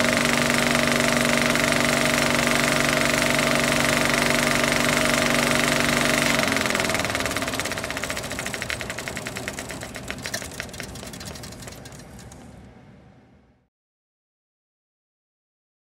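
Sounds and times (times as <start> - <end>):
projector mechanism clicking: 0.0 - 12.5
film projector motor hum: 0.0 - 12.7.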